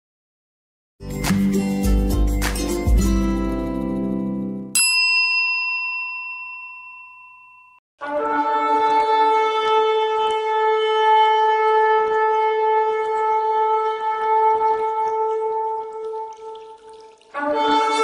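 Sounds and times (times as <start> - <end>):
bell-like ding: 4.8 - 7.8.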